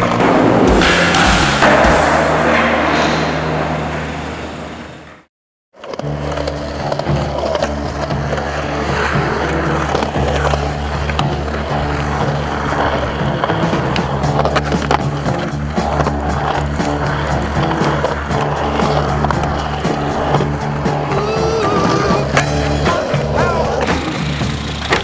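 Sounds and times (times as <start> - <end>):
skateboard wheels rolling on concrete: 0.0 - 25.0
skateboard clacks: 5.8 - 25.0.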